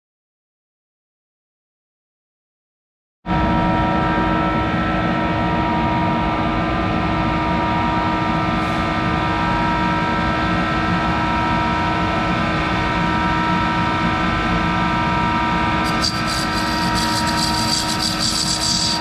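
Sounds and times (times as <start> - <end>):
metal lathe running: 15.8 - 19.0.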